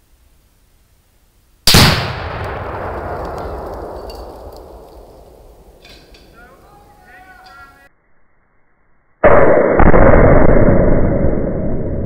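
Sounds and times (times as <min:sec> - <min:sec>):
explosive target blast with echo: 0:01.7 - 0:06.0, 0:09.2 - 0:12.0.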